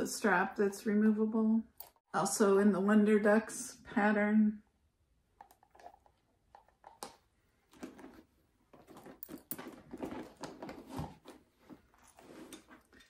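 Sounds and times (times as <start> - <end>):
handbag rustling and clicking: 7.7 - 13.0.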